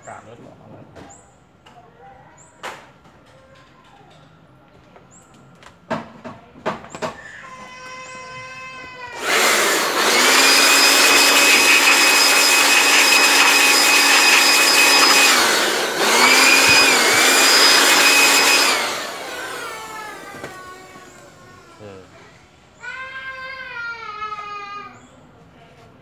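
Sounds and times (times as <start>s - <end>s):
electric blower rushing air: 9.1s - 21.9s.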